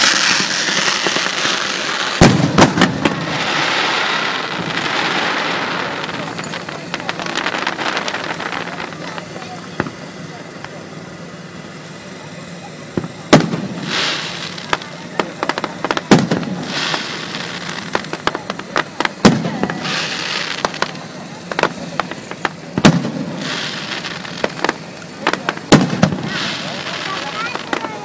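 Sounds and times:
crackling hiss: 0:00.0 - 0:28.0
fireworks bangs: 0:00.0 - 0:28.0.

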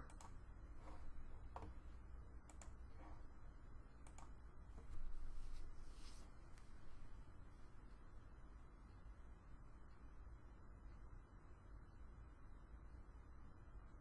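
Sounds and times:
low steady hum: 0:00.0 - 0:14.0
mouse and keyboard clicks: 0:02.4 - 0:02.8, 0:04.0 - 0:04.4.

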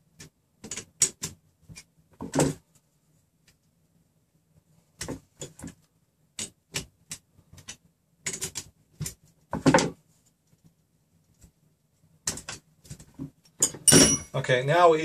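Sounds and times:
metal parts clattering: 0:13.6 - 0:14.3.

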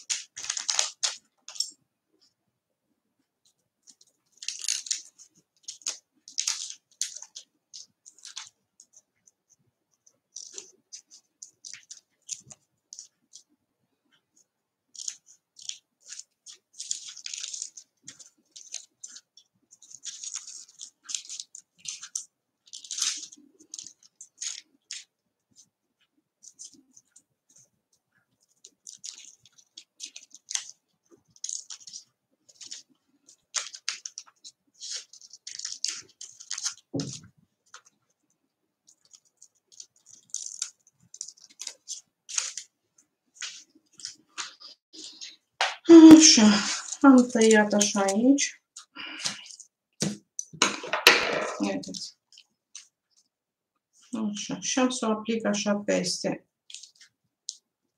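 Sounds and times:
paper crackling: 0:00.0 - 0:01.7, 0:03.8 - 0:09.0, 0:14.9 - 0:27.7, 0:28.4 - 0:38.0, 0:38.8 - 0:42.7, 0:43.3 - 0:49.7, 0:51.6 - 0:52.9, 0:56.7 - 0:57.6
scissors snipping paper: 0:00.0 - 0:01.7, 0:31.4 - 0:37.9, 0:51.6 - 0:52.9.

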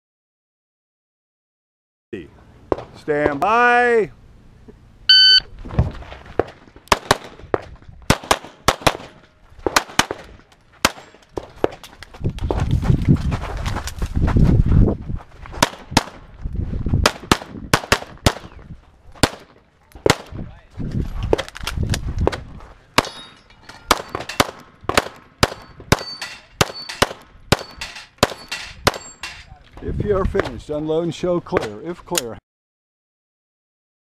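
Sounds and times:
steel targets ringing: 0:23.0 - 0:24.5, 0:25.5 - 0:29.5
handgun shots: 0:23.9 - 0:29.4.

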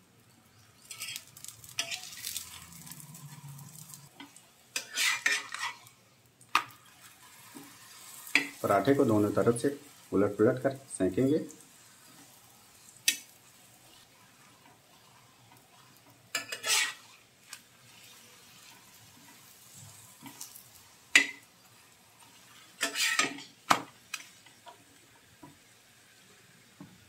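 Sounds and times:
ghee sizzling faintly: 0:00.0 - 0:27.0
spatula scraping an iron griddle: 0:00.8 - 0:06.0, 0:06.6 - 0:10.0, 0:11.7 - 0:24.3.

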